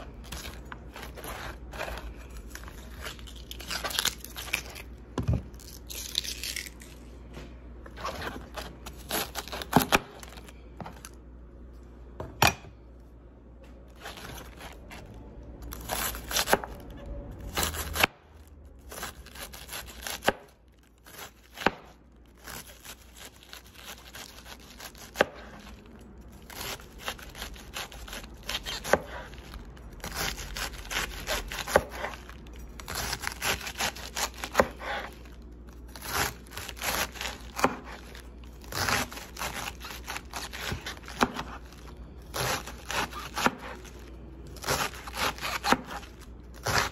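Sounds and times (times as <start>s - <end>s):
knife shredding cabbage on board: 26.4s - 35.3s, 35.9s - 44.0s, 44.6s - 46.9s.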